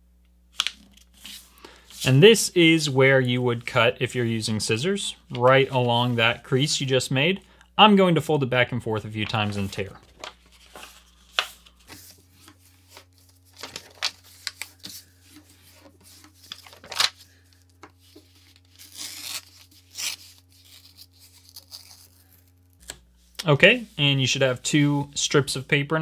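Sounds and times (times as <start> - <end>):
paper crackling and rustling: 9.2 - 23.0
paper tearing: 18.3 - 23.0.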